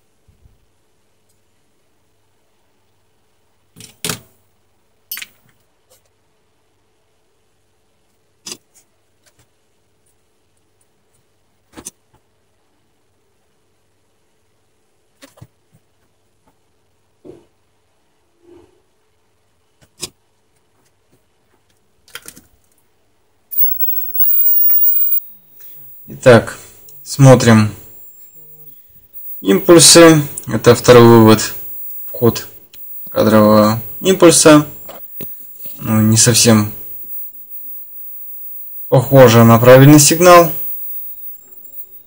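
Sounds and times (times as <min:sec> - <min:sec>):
faint steady hum: 0:23.2 - 0:42.0.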